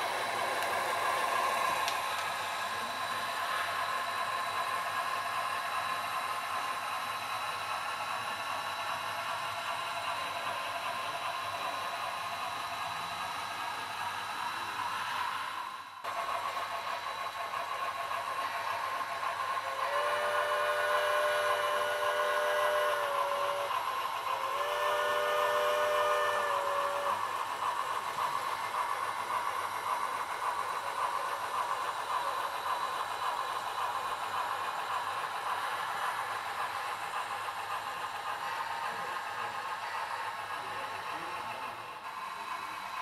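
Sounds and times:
model train hiss and clatter: 0.0s - 43.0s
model train steam whistle: 18.8s - 27.9s.

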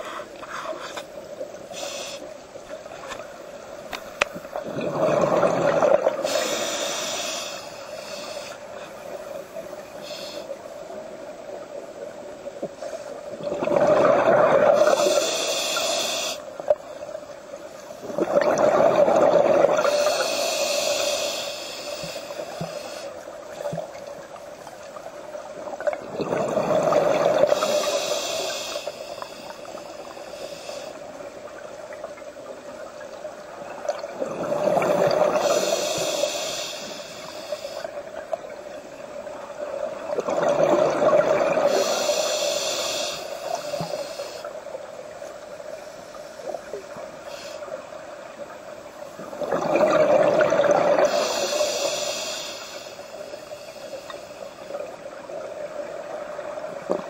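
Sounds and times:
diver exhaling bubbles underwater: 4.6s - 6.2s, 13.4s - 15.0s.

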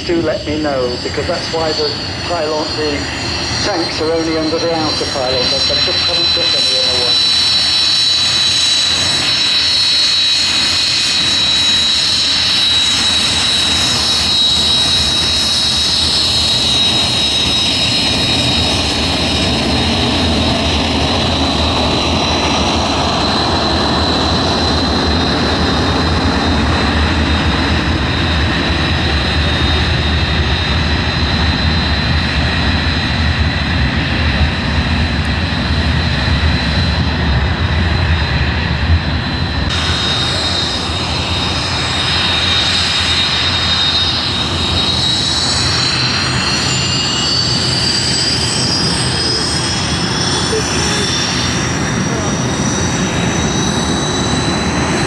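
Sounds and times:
jet engine whine and roar: 0.0s - 55.0s.

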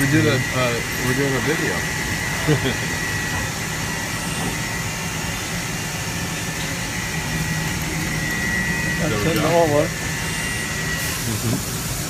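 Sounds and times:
high whine: 0.0s - 11.6s
machinery hum and hiss: 0.0s - 12.0s.

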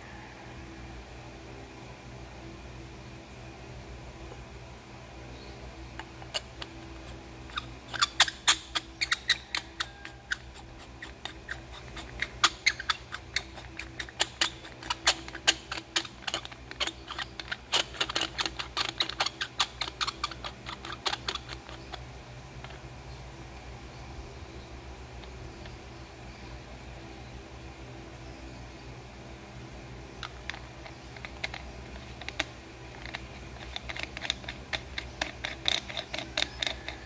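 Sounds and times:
metal threads clicking: 6.0s - 22.0s, 30.2s - 37.0s.

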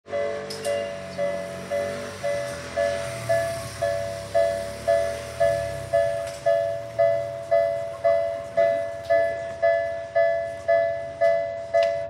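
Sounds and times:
level crossing alarm two-tone clang: 3.8s - 12.0s.

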